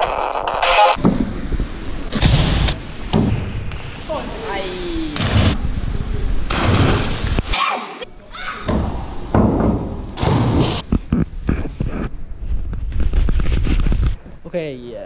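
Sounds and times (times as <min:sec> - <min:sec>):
water splashing: 0:01.3 - 0:07.6
diving springboard thudding: 0:05.2 - 0:07.6, 0:08.6 - 0:10.9.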